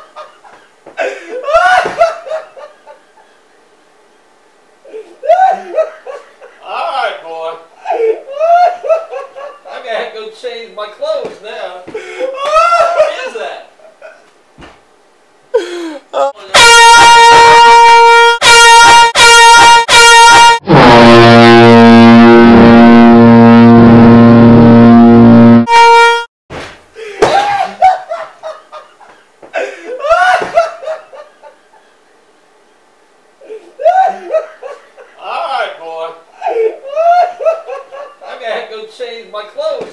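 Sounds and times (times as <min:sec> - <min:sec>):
people laughing: 0:01.3 - 0:03.4, 0:04.9 - 0:06.6, 0:07.8 - 0:09.7, 0:12.0 - 0:14.3, 0:29.9 - 0:31.9, 0:33.8 - 0:35.3, 0:36.4 - 0:38.3
air horns blasting: 0:16.5 - 0:26.3.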